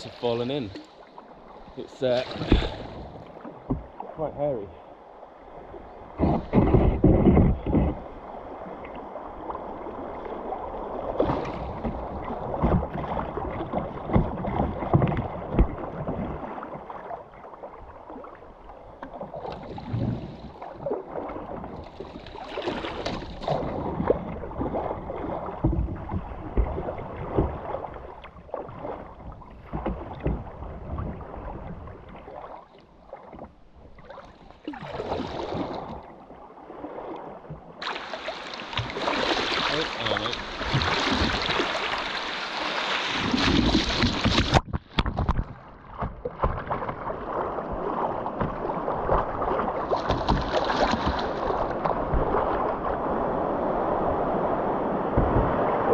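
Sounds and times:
kayak paddle splashing: 0.0 - 55.9
river water sloshing against hull: 0.0 - 55.9.

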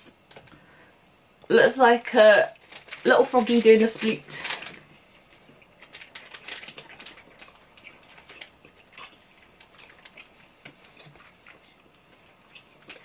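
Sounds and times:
chewing clicks and smacks: 5.5 - 13.0.

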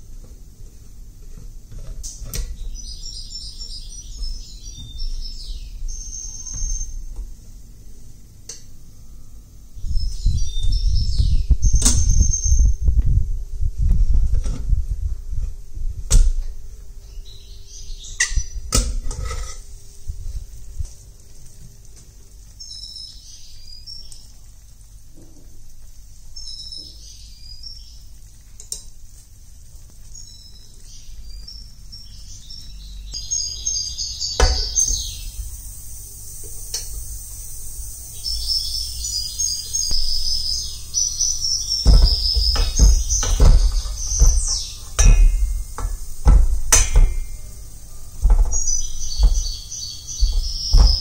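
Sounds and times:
high bird-like chirps: 2.6 - 7.1, 37.5 - 46.1, 48.5 - 51.0
low rumble: 9.0 - 19.0
kitchen utensils clinking: 41.8 - 49.5.

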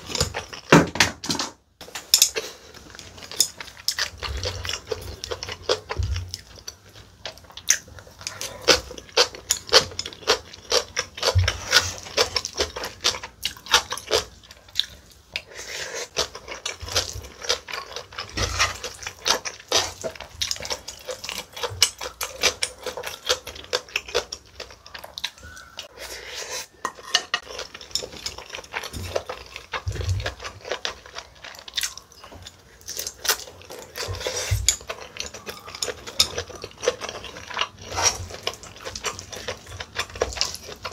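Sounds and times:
utensils scraping a plate: 25.9 - 29.0.

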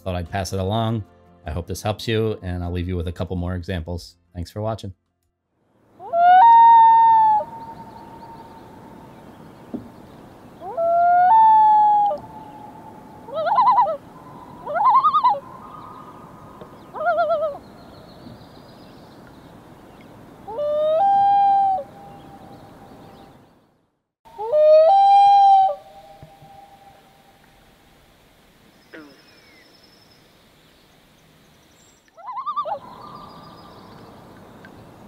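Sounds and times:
wavering loon calls: 6.0 - 8.9, 10.6 - 17.8, 20.5 - 22.5, 24.3 - 27.1, 32.1 - 33.8
loons calling: 6.0 - 23.4, 24.3 - 27.5, 31.6 - 35.0.

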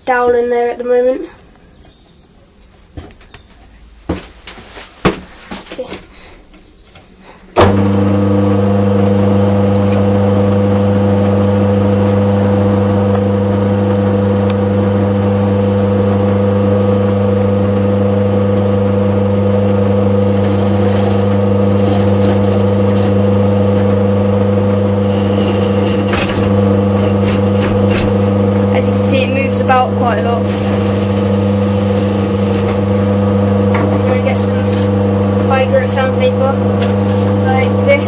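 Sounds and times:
drill motor running: 7.6 - 38.0
chisel scraping spinning wood: 18.4 - 38.0.

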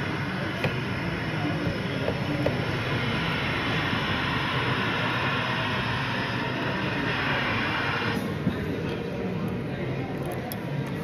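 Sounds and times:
model train running on track: 0.0 - 8.2
steady background hum: 0.0 - 11.0.

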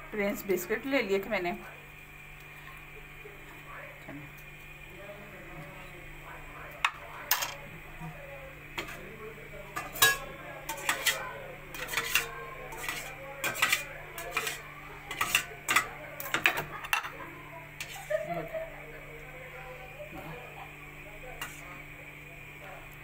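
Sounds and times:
spoon clinking against dishes: 9.8 - 11.2.

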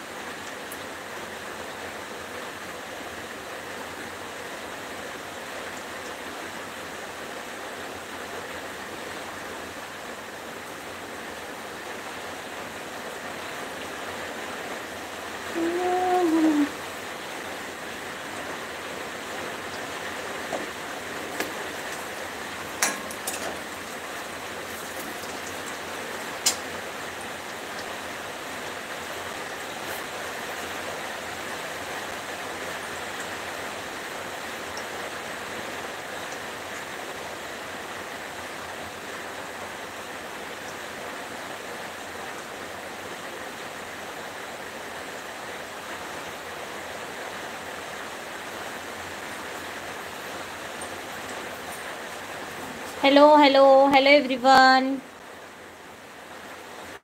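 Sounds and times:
food sizzling in hot oil: 21.2 - 26.9
ladle clicking against wok: 22.8 - 23.7.

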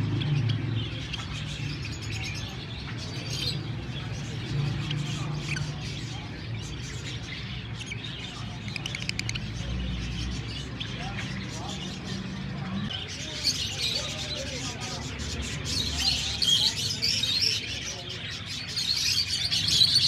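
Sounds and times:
lovebirds chirping: 0.0 - 20.0.

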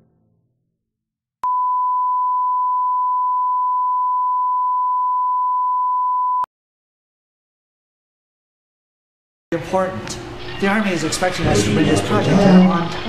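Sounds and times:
steady test tone beep: 1.4 - 6.5.

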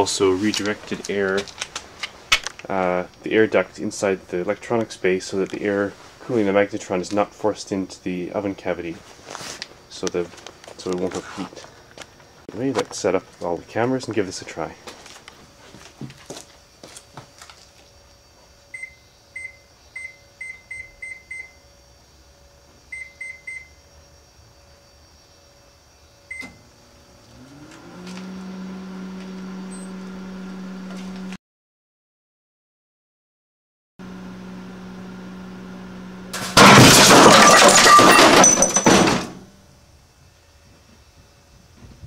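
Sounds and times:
microwave oven humming: 17.2 - 31.4, 34.0 - 37.0
microwave keypad beeps: 18.8 - 21.6, 22.9 - 23.7
glass and debris flying: 36.4 - 39.4.

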